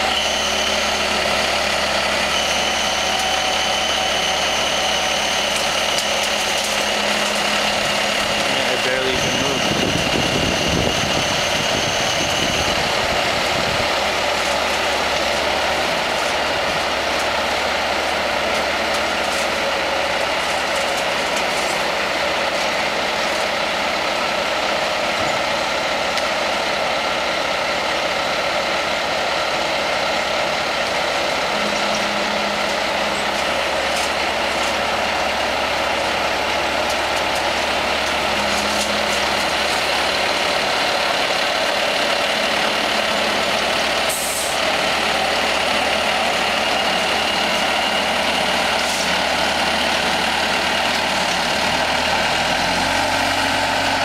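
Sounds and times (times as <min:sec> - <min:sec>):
diesel engine drone: 0:00.0 - 0:54.0
high whine: 0:00.0 - 0:54.0.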